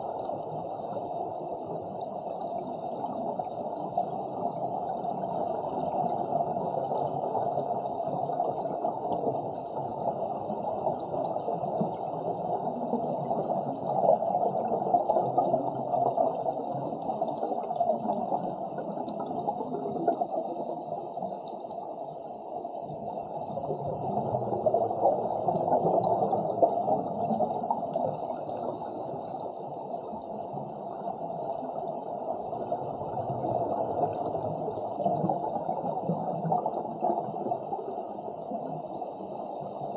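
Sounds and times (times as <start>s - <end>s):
underwater breath bubbling: 9.9s - 30.2s.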